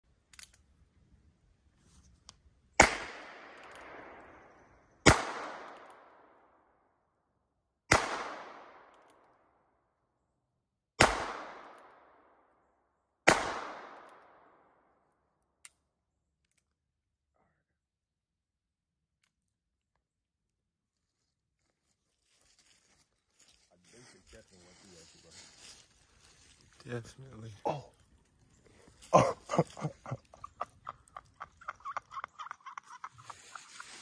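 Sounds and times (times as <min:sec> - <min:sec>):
revolver gunshots echoing: 0:02.8 - 0:06.5, 0:07.9 - 0:09.0, 0:11.0 - 0:12.3, 0:13.2 - 0:14.7.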